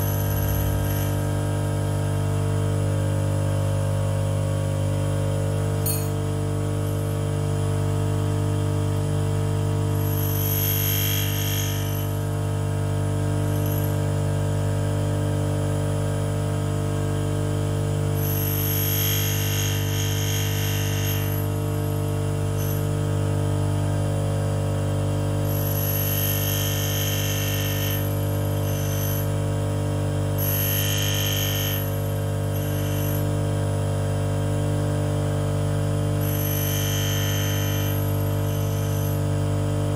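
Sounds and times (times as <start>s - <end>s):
grinding wheel hiss: 0.0s - 1.6s, 9.9s - 12.4s, 13.2s - 14.1s, 18.1s - 23.4s, 25.4s - 33.5s, 36.2s - 39.4s
grinder motor hum: 0.0s - 39.9s.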